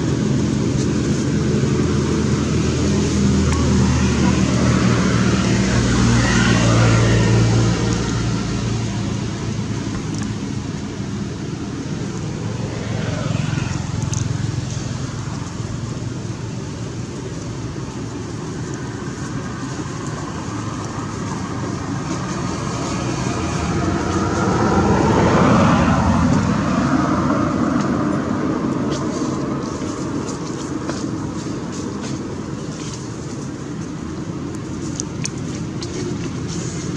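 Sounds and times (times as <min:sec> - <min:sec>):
road traffic rumble: 0:00.0 - 0:36.9.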